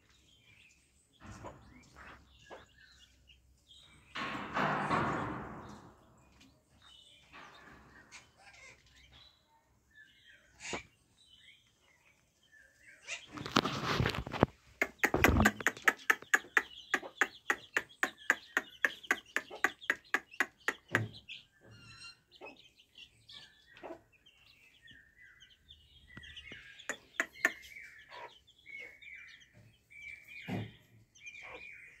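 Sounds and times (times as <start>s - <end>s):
chicks chirping: 0.0s - 32.0s
sharp clicks: 14.8s - 21.1s.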